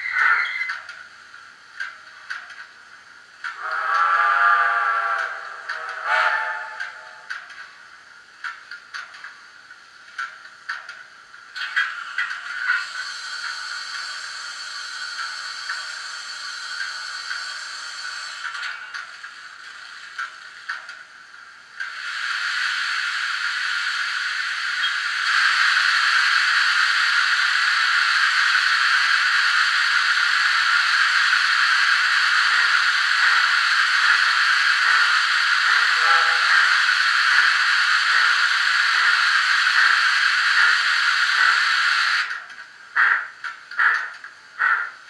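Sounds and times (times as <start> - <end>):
model locomotive steam hiss: 3.5 - 8.0, 12.0 - 20.5, 21.6 - 43.2
short sharp steam bursts: 12.7 - 18.5, 21.9 - 42.3.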